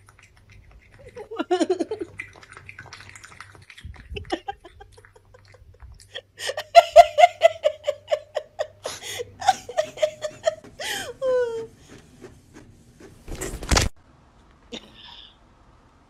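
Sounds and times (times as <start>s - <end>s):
woman laughing: 1.1s - 2.1s, 4.1s - 11.8s.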